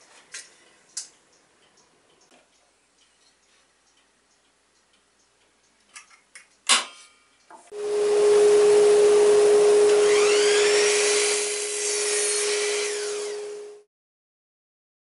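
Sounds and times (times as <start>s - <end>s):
miter saw whining: 7.7s - 13.9s.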